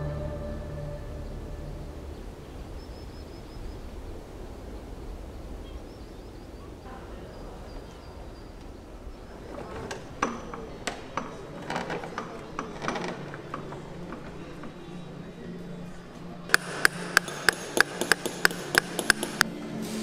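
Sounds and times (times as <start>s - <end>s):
low rumble: 0.0s - 3.1s
wooden door clicks and clack: 9.3s - 15.3s.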